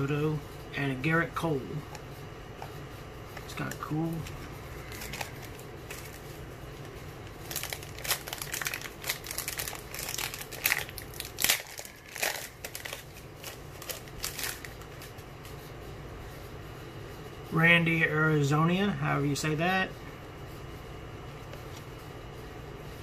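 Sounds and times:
steady low hum: 0.0s - 23.0s
foil wrapper crinkling: 3.5s - 15.3s.

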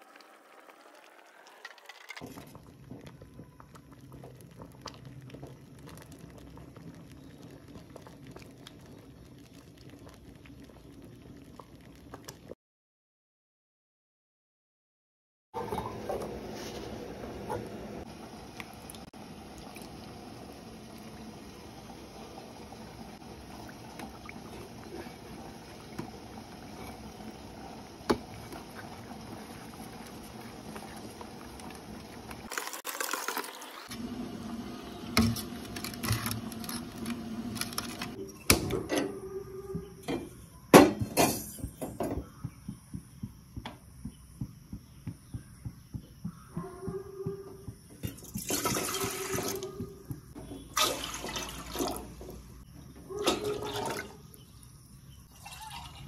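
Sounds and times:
liquid sloshing: 50.8s - 52.3s.

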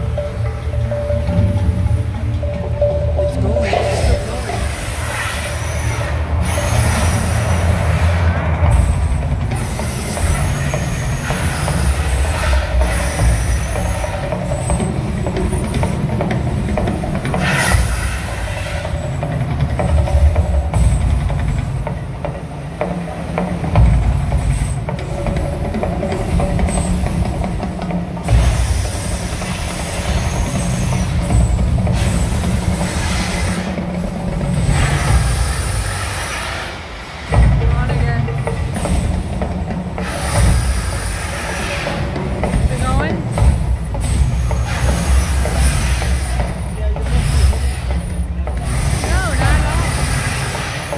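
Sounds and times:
loud low rumble: 1.6s - 18.3s
gas flames hissing: 3.6s - 50.9s.

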